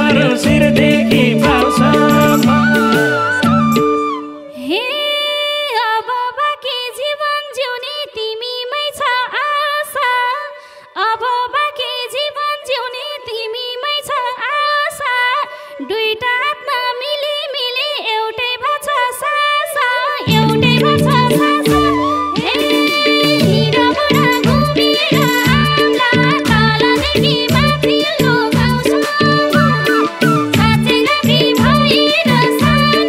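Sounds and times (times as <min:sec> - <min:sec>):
folk band with deeper notes: 0:00.0 - 0:04.2, 0:20.3 - 0:33.0
sliding ornamented folk melody: 0:00.0 - 0:04.5, 0:20.3 - 0:33.0
hand drum strokes: 0:20.3 - 0:33.0.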